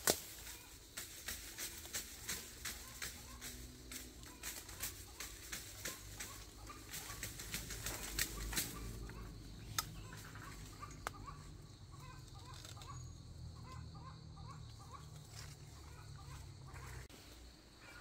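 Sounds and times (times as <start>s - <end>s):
rustling: 0.0s - 9.2s.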